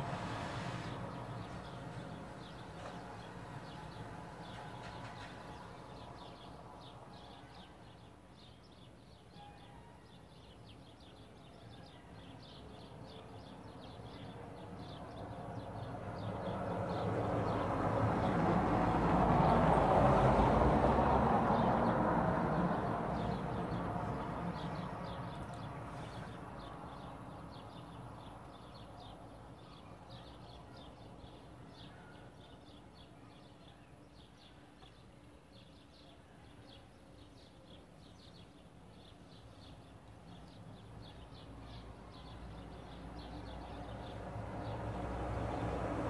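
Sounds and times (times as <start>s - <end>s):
vehicle passing by: 0.0s - 7.0s, 14.6s - 29.4s, 40.8s - 46.0s
faint bird chirps: 7.1s - 14.4s.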